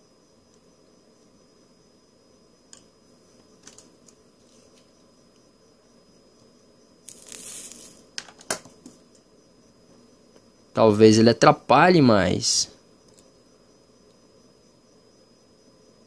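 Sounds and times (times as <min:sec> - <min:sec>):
handling ticks: 0:02.7 - 0:05.5, 0:13.0 - 0:13.4
flux sizzling: 0:07.0 - 0:08.2.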